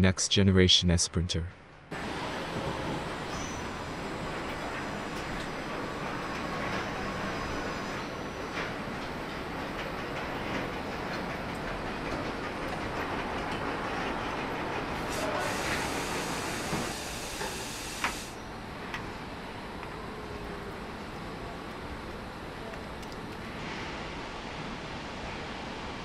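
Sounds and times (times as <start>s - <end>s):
factory machinery din: 1.9s - 24.1s
hiss: 15.0s - 18.4s.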